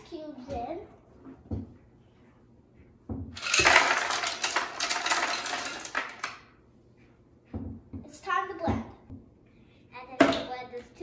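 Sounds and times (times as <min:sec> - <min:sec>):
ice cubes clattering into blender: 0:03.4 - 0:06.4.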